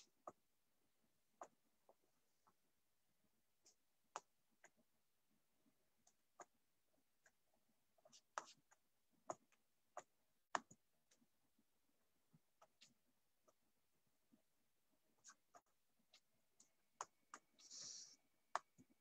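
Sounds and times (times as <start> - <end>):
faint clicks and taps: 0.0 - 0.4, 1.4 - 2.6, 3.6 - 4.9, 5.6 - 14.5, 15.1 - 17.8, 18.5 - 19.0.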